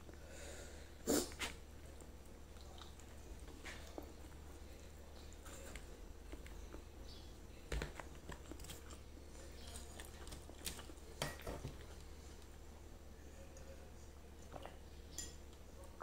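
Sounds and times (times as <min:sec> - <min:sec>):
low steady hum: 0:00.0 - 0:16.0
person chewing food: 0:00.9 - 0:07.1, 0:07.8 - 0:12.6.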